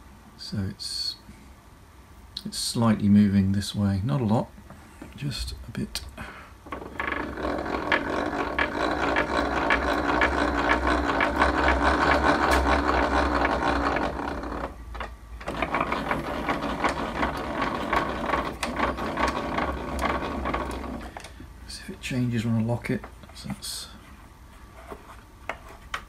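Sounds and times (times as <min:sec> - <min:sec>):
winding mechanism rattling clicks: 0:06.8 - 0:21.3.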